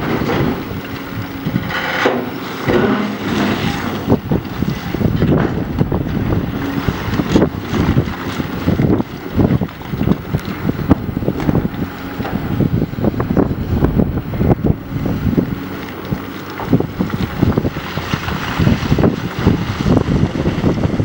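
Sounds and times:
excavator diesel engine under load: 0.0s - 21.0s
wind buffeting microphone: 0.0s - 21.0s.

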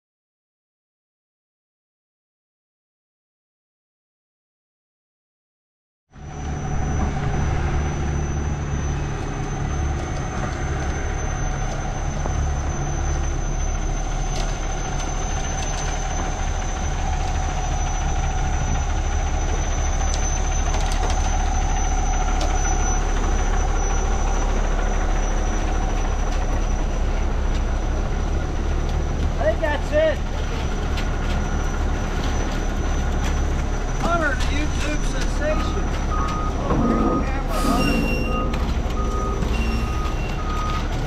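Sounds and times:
large engine running: 6.2s - 41.0s
high whine: 34.2s - 40.5s.

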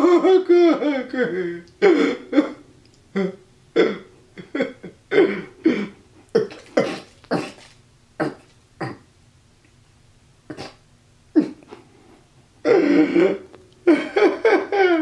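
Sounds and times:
man laughing hard: 0.0s - 2.6s, 3.2s - 6.0s, 12.7s - 15.0s.

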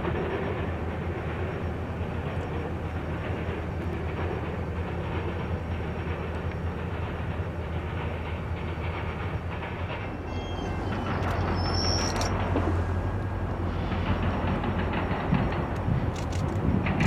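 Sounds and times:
train wheels rumbling and clattering: 0.0s - 17.0s
high wheel squealing: 8.6s - 14.9s.

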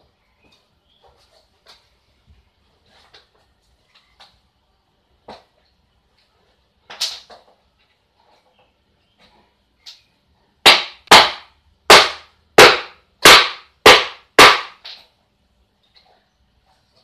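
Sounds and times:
hammer striking plywood: 10.7s - 14.8s.

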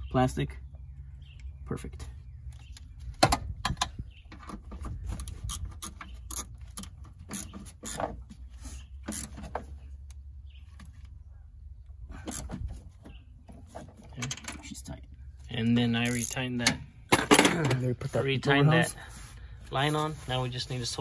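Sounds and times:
hand ratchet clicking: 5.2s - 8.0s, 16.0s - 16.4s.

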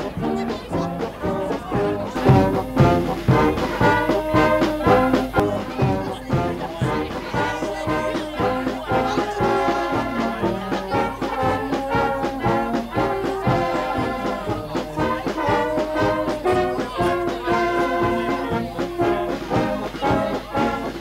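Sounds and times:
dance-band music with brass: 0.0s - 21.0s.

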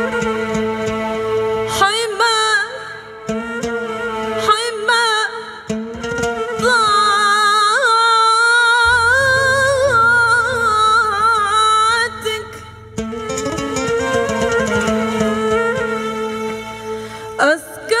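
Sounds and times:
oud: 0.0s - 18.0s
violin: 0.0s - 18.0s
woman singing: 1.7s - 3.1s, 4.4s - 5.7s, 6.4s - 14.1s, 17.4s - 18.0s
hand drum: 8.8s - 16.2s
low bass: 8.8s - 17.0s.

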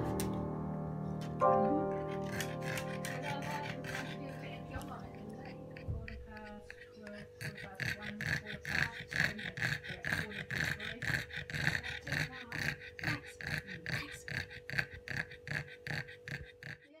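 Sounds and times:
dog panting rapidly: 1.8s - 17.0s.

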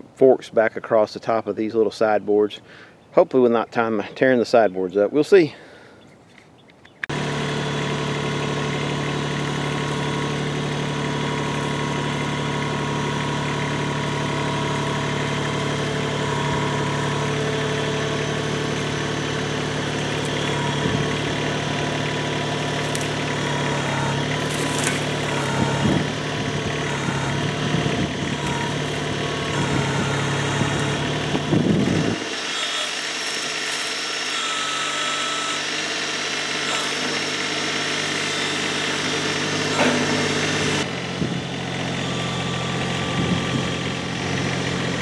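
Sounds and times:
tractor diesel engine running: 7.0s - 45.0s
brush branches rustling: 18.3s - 26.8s
sharp cracks of branches: 22.6s - 23.4s, 24.3s - 25.6s.

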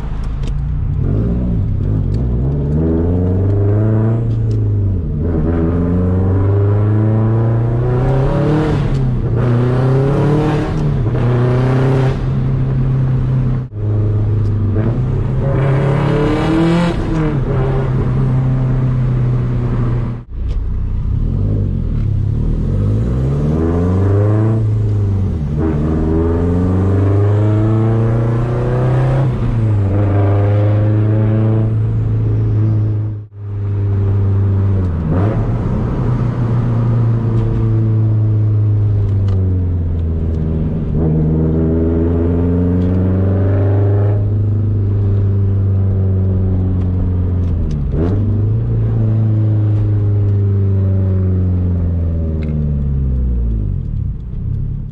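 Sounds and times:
car engine revving through gears: 0.2s - 54.9s.

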